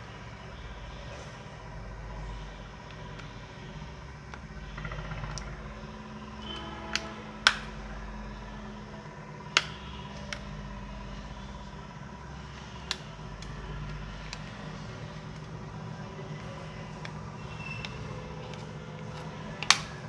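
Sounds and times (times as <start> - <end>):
steady low hum: 0.0 - 20.0
plastic housing clips clicking apart: 17.0 - 20.0.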